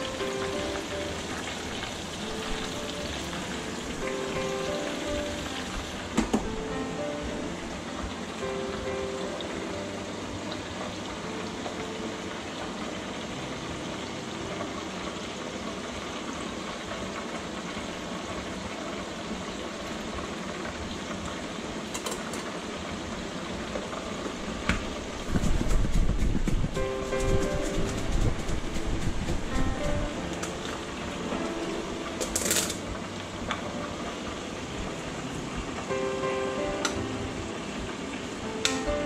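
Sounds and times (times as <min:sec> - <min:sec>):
food frying in oil: 0:00.0 - 0:39.0
plastic container shaken: 0:25.2 - 0:30.1.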